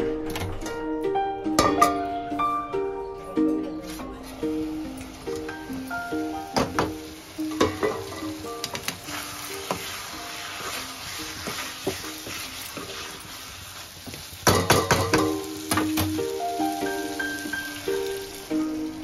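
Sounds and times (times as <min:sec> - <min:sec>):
steel lid clanking: 0:01.6 - 0:02.0, 0:06.6 - 0:09.0
masala sizzling: 0:03.4 - 0:19.0.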